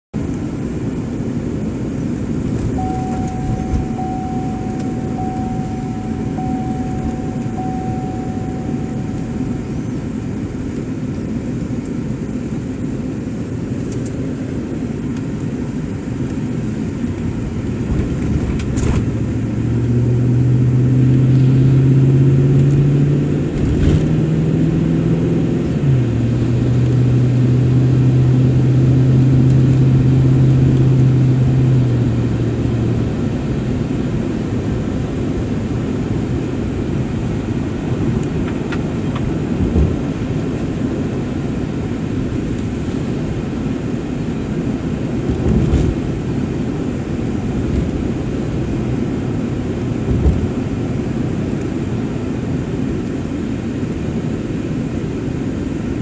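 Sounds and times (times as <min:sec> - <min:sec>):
car road and engine noise: 0:00.1 - 0:56.0
strong low hum: 0:00.2 - 0:53.1
faint high tone: 0:02.7 - 0:10.2.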